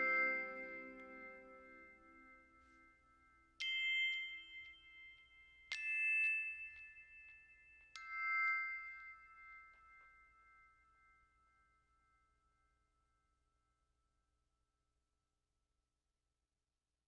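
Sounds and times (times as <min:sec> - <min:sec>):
bell-like struck notes: 0:00.0 - 0:12.7.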